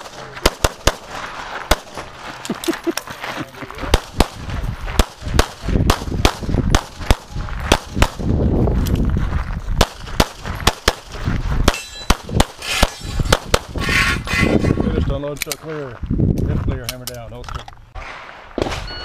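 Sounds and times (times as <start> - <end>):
pistol shots: 0.0 - 2.0, 3.9 - 8.3, 9.8 - 13.7.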